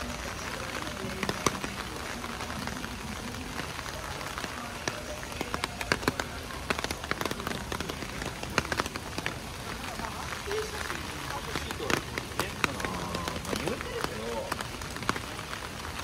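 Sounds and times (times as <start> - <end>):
raindrops tapping close by: 0.0 - 16.0
steady rain falling: 0.0 - 16.0.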